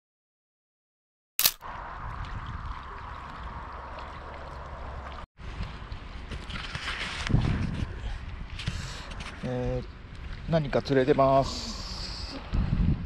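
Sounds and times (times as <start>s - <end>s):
sharp click: 1.4s - 1.6s
wind rumble on microphone: 1.6s - 10.9s, 11.7s - 13.0s
water lapping at stone shore: 1.6s - 13.0s.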